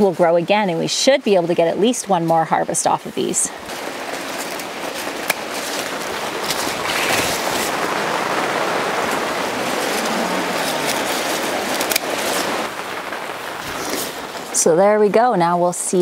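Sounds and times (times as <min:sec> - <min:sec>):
rain on plastic roof: 0:00.0 - 0:16.0
scissors snipping stems: 0:04.4 - 0:07.7, 0:09.8 - 0:12.5.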